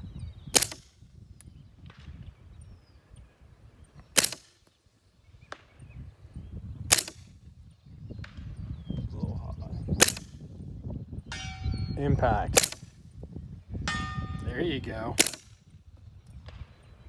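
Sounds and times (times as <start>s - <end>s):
suppressed gunshots: 0.5s - 1.0s, 4.1s - 4.7s, 6.9s - 7.4s, 10.0s - 10.5s, 12.5s - 13.0s, 15.2s - 15.7s.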